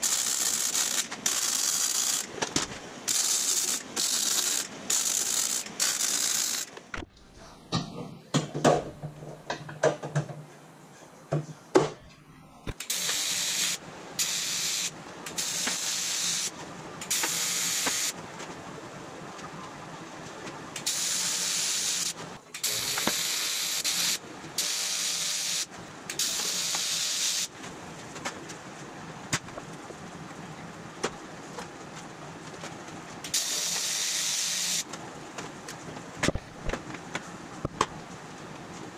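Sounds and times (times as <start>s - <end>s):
welding arc hissing: 0.0s - 2.4s, 3.0s - 6.7s, 12.8s - 18.2s, 20.8s - 27.5s, 33.3s - 34.9s.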